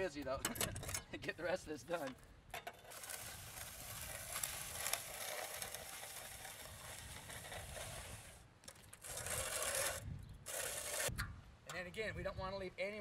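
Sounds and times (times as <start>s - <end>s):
trowel scraping concrete: 2.8s - 11.1s.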